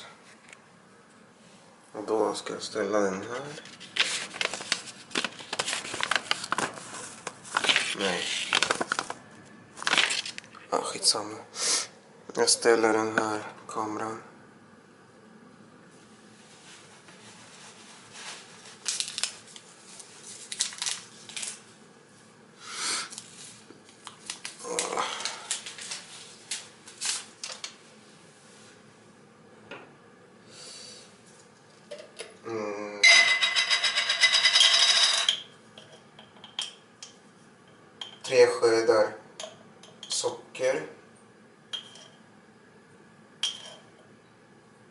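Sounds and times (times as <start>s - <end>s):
kitchenware clicks and knocks: 33.0s - 35.4s.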